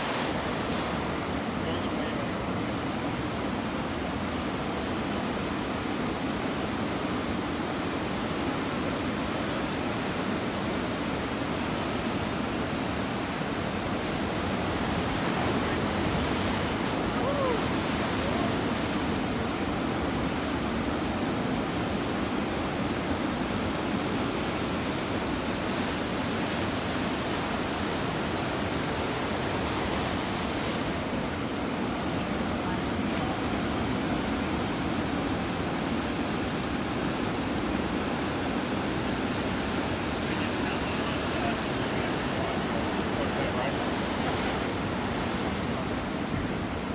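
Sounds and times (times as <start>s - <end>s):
whitewater washing in: 0.0s - 4.6s, 5.7s - 46.9s
ocean surf breaking: 0.0s - 46.9s.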